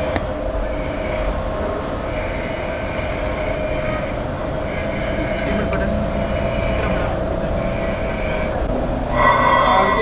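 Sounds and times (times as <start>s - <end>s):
constant whining tone: 0.0s - 10.0s
mechanical drone: 0.0s - 10.0s.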